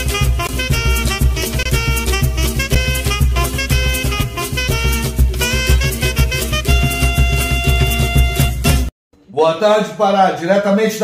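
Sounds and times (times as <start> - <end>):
pulsing bass beat: 0.0 - 8.9
upbeat instrumental music: 0.0 - 8.9.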